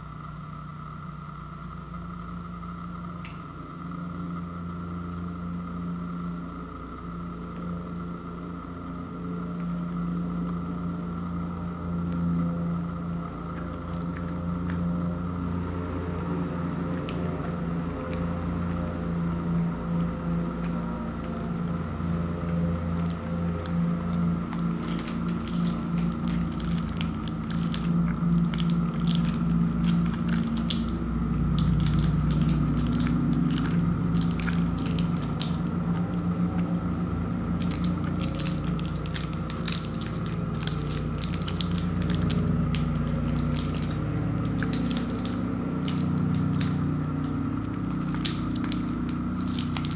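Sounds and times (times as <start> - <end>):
steady low hum: 0.0 - 49.9
candy wrappers crinkling: 23.0 - 35.7, 37.5 - 49.9.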